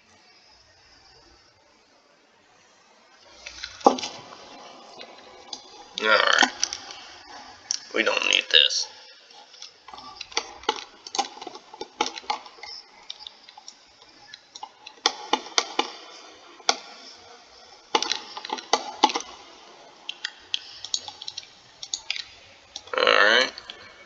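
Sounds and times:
computer mouse clicking: 9.5 - 16.0, 20.1 - 22.9.

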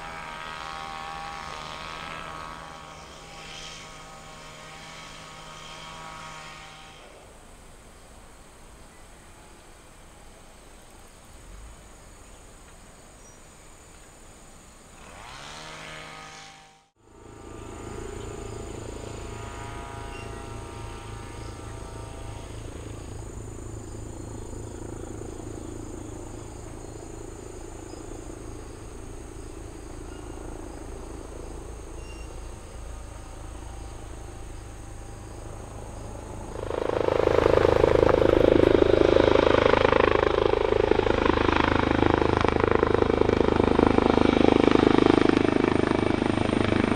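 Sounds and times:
helicopter rotor and engine: 0.0 - 11.8, 14.7 - 46.9
insects chirring: 17.1 - 46.9.

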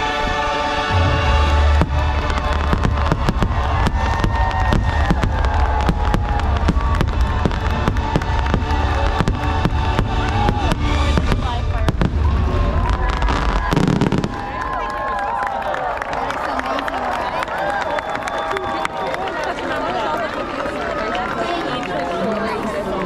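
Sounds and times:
music: 0.0 - 13.8
heavy low rumble: 0.0 - 14.7
fireworks bangs and crackles: 0.0 - 15.1.

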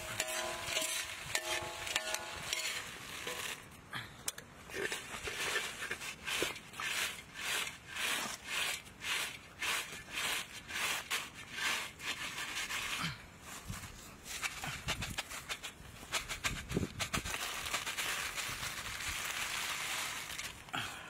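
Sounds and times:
utensil scraping a metal wok: 0.0 - 3.7, 4.7 - 13.0.

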